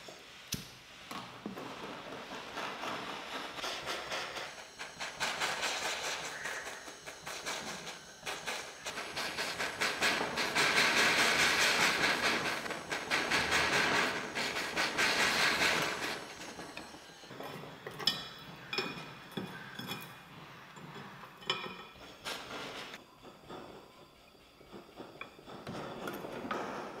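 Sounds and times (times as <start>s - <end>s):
torch flame hissing: 0.0s - 19.3s
tools tapping on metal: 15.8s - 22.8s.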